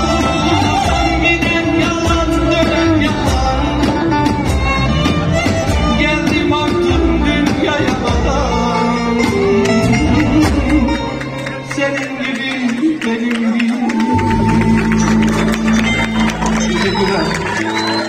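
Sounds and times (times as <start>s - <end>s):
drum keeping a steady beat: 0.0s - 11.5s
violin: 0.0s - 12.5s
man singing: 0.0s - 17.1s.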